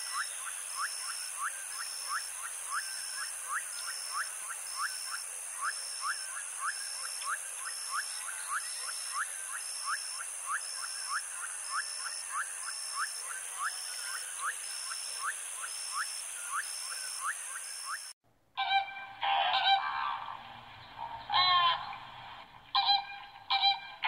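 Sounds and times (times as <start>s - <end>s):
flamingos calling: 18.6s - 20.4s, 21.0s - 22.1s, 22.7s - 24.0s.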